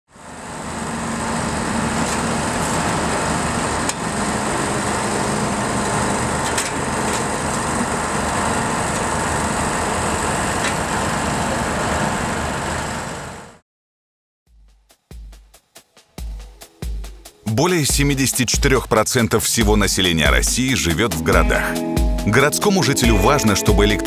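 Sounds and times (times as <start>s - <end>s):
excavator engine running: 0.1s - 13.6s.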